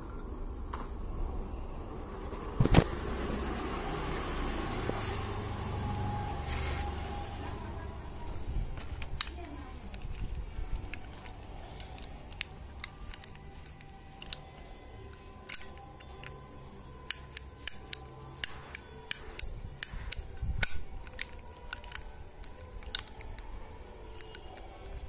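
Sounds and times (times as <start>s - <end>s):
lighter sharp metallic clicks: 17.0s - 24.6s.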